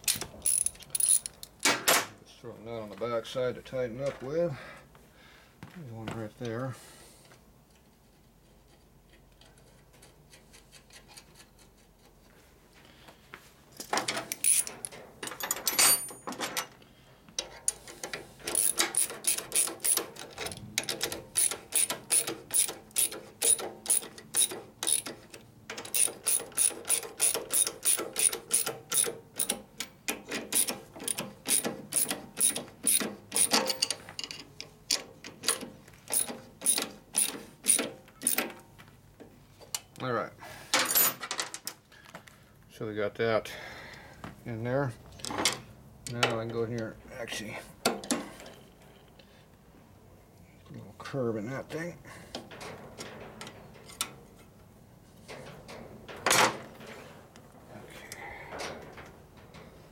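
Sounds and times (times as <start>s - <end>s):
ratchet wrench clicking: 0.0s - 1.4s, 14.4s - 14.8s, 18.5s - 20.2s, 20.8s - 25.2s, 25.8s - 29.6s, 30.5s - 33.9s, 36.1s - 38.4s.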